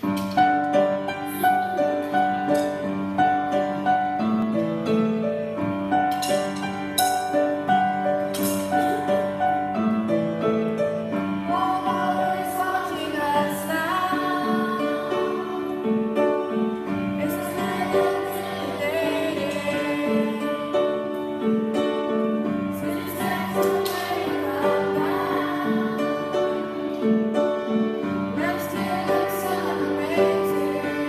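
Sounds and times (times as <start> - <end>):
upright piano playing: 0.0 - 31.0.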